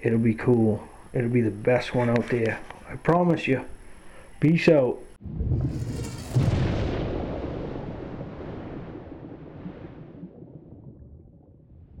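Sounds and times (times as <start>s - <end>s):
deep rumbling whoosh: 5.2s - 12.0s.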